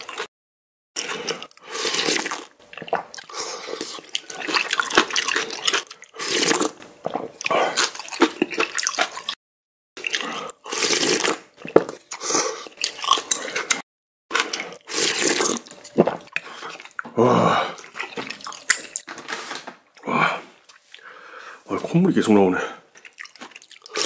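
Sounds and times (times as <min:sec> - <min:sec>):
slurping and chewing noodles: 0:00.0 - 0:00.3, 0:01.0 - 0:09.4, 0:10.0 - 0:19.1, 0:22.6 - 0:24.0.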